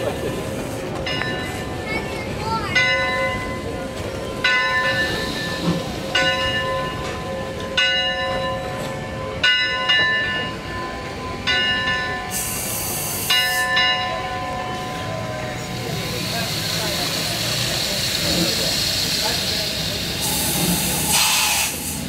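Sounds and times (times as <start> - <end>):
locomotive bell ringing: 0.0 - 16.2
steam hiss: 12.3 - 13.8, 15.7 - 22.0.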